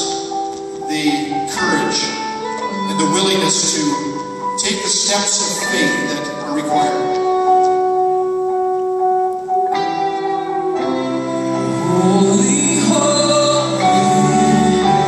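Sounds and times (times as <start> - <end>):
orchestra chords: 0.0 - 15.0
people singing: 11.8 - 15.0.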